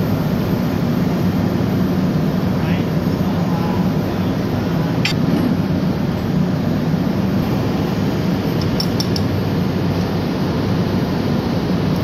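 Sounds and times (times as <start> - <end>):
engine room machinery drone: 0.0 - 12.0
light metal clinks: 8.5 - 9.4.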